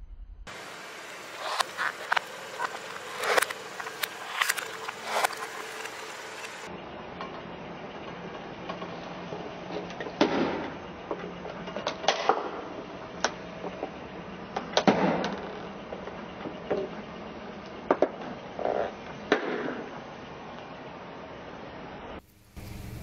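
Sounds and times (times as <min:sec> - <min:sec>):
low steady hum: 0:20.1 - 0:23.0.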